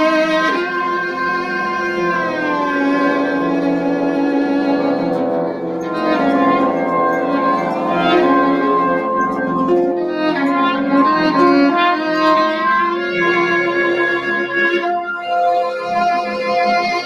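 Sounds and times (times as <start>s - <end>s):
bowed strings with violin: 0.0s - 17.0s.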